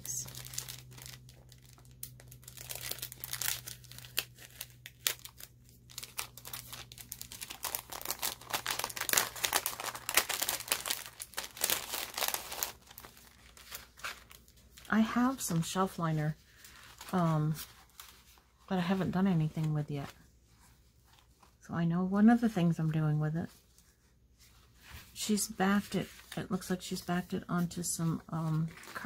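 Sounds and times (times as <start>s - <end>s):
cellophane sleeve crinkling: 0.0s - 20.2s, 27.6s - 29.0s.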